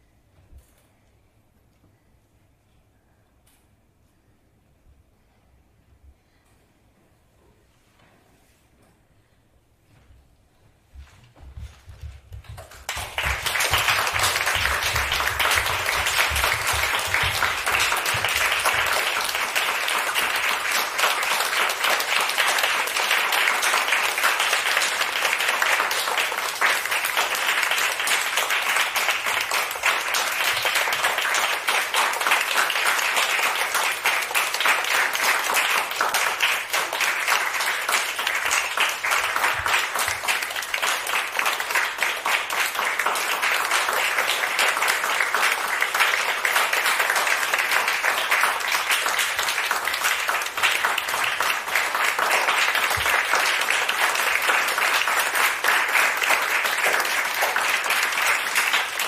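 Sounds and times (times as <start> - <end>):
audience applauding: 12.3 - 59.0.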